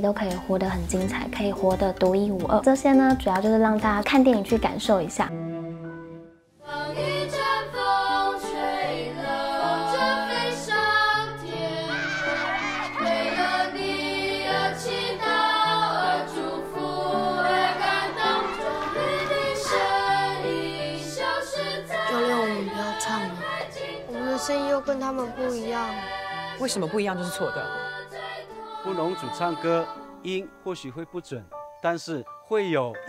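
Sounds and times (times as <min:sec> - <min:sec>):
choir singing: 0:06.6 - 0:30.3.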